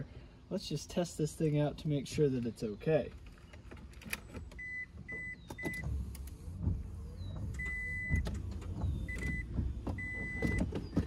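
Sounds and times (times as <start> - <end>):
low car rumble: 1.4 - 11.0
car warning chime beeping: 4.6 - 6.0, 7.6 - 10.8.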